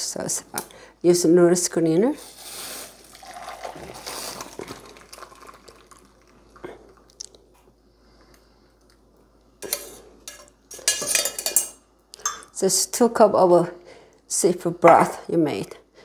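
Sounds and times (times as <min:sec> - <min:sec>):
metal pot and strainer clinking: 0:09.6 - 0:12.5.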